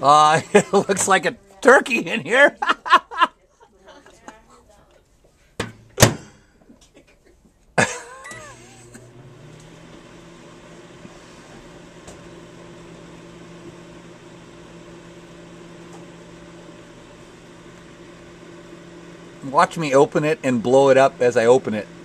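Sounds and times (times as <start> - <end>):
microwave running hum: 7.8 - 22.0
microwave starting: 7.8 - 22.0.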